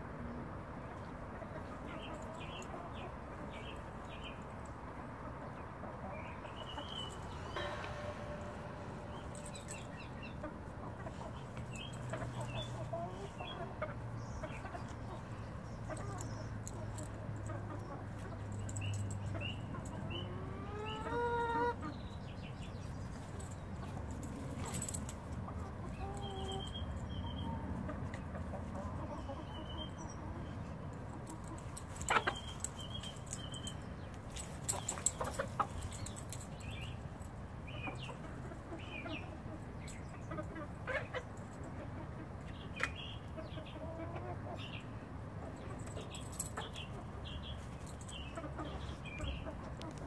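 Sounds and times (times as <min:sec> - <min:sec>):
low background noise: 0:00.0 - 0:50.0
hens clucking: 0:05.2 - 0:18.5, 0:19.2 - 0:22.0, 0:23.8 - 0:26.8, 0:27.5 - 0:33.7, 0:34.3 - 0:36.3, 0:37.7 - 0:44.8, 0:48.1 - 0:50.0.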